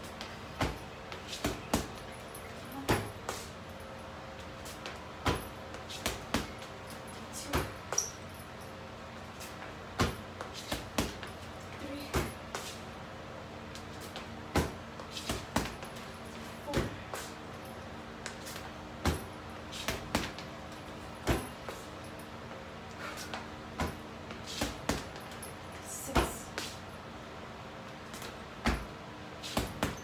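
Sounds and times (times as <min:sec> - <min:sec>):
punches thudding on heavy bag: 0:10.0 - 0:11.2, 0:14.5 - 0:15.9, 0:16.7 - 0:17.1, 0:19.0 - 0:20.4, 0:21.2 - 0:21.6, 0:28.6 - 0:28.9, 0:29.5 - 0:30.0.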